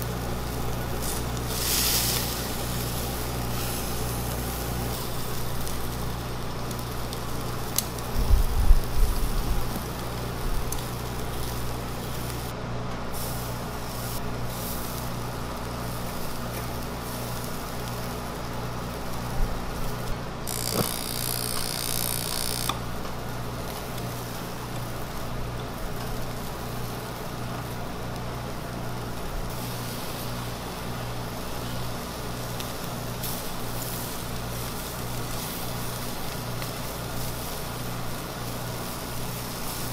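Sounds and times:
loud hiss: 0.0 - 6.2, 20.4 - 22.9
food grilling over charcoal: 0.0 - 39.9.

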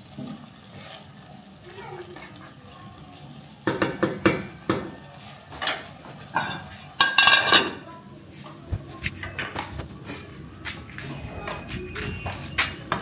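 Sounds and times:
metal pots and dishes clattering: 5.5 - 7.8.

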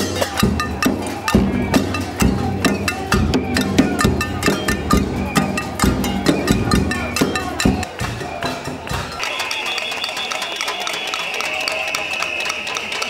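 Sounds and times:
bass drum beats: 0.0 - 9.2
clicking percussion strokes: 0.0 - 13.0.

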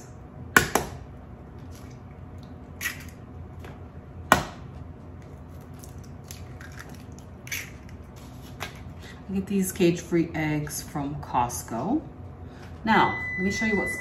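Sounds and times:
egg cracking: 5.2 - 8.2.

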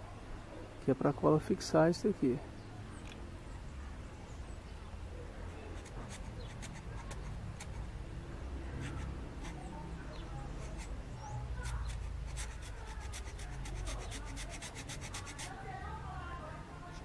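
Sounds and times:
hacksaw blade scraping plywood: 11.6 - 15.5.

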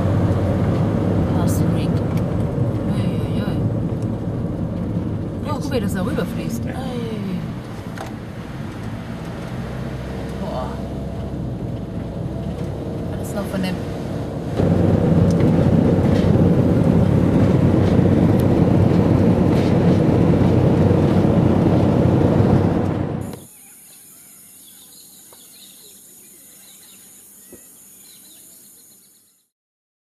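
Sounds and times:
car road and engine noise: 0.0 - 24.2
high insect drone: 23.2 - 29.4
faint bird chirps: 23.4 - 29.5.

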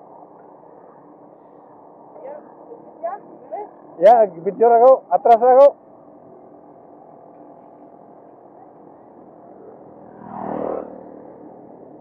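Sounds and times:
bicycle road rush on concrete: 7.3 - 12.0.

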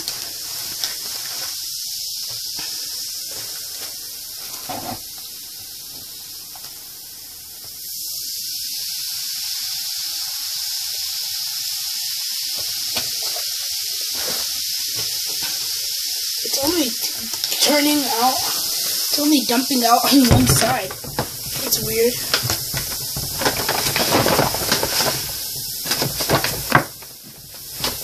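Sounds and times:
baking soda and vinegar fizzing: 0.0 - 28.0
liquid pouring from a jug: 20.3 - 28.0.

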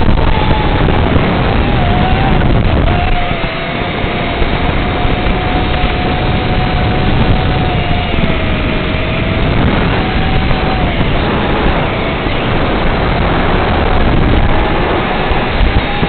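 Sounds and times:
drone motor whine: 0.0 - 16.0.

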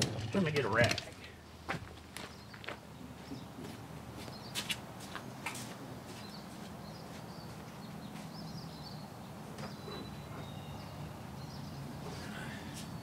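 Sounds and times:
faint bird chirps: 9.6 - 13.0.

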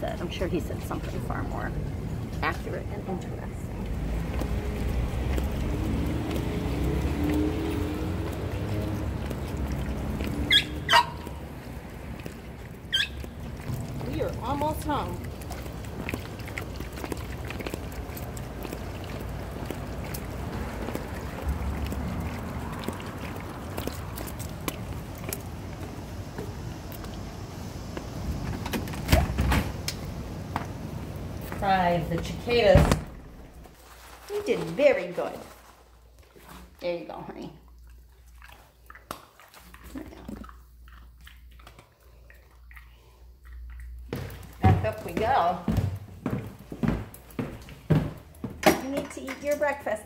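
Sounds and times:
passing vehicle engine hum: 0.0 - 33.8
traffic rumble: 0.0 - 39.0, 39.6 - 50.0.

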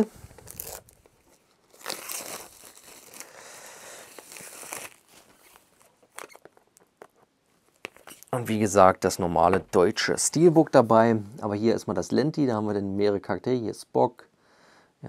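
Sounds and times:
packaging rustling and scraping: 0.0 - 3.3, 4.0 - 8.3.

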